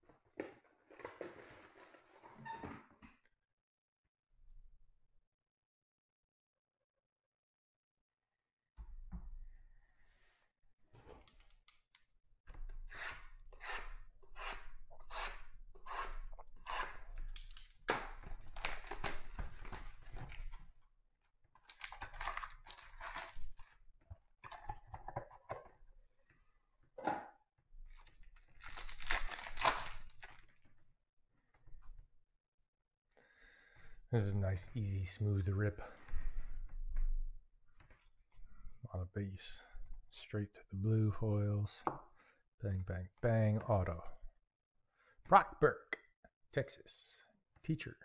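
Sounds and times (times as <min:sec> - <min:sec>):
foil pack ripping: 0:18.4 - 0:20.5, 0:21.7 - 0:23.7, 0:28.4 - 0:30.6
plastic wrapping crinkling and tearing: 0:18.4 - 0:20.6, 0:21.6 - 0:23.8, 0:27.9 - 0:30.6.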